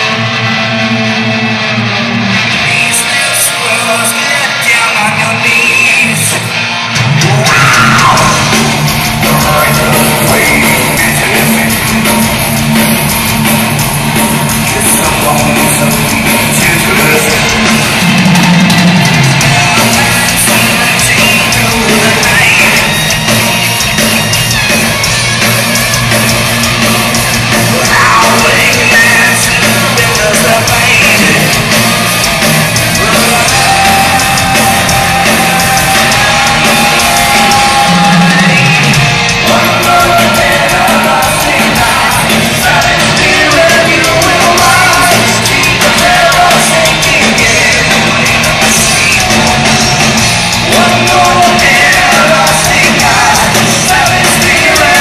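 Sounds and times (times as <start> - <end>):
bass guitar: 0.0 - 55.0
distorted electric guitars: 0.0 - 55.0
drums: 0.0 - 55.0
person yelling and singing: 7.1 - 12.1, 14.6 - 18.1, 19.4 - 23.2, 27.6 - 31.9, 32.8 - 55.0.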